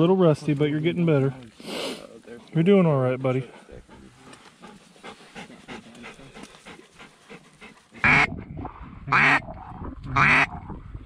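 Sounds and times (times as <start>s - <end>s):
duck call quacks: 8.0s - 8.3s, 9.1s - 9.4s, 10.2s - 10.5s.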